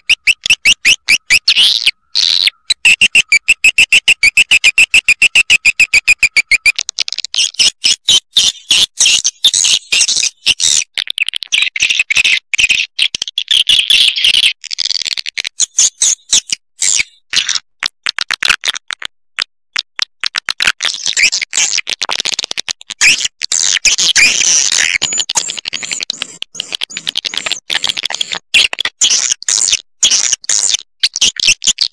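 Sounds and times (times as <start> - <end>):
high twittering bird chirps: 0.0 - 6.8, 23.9 - 27.6.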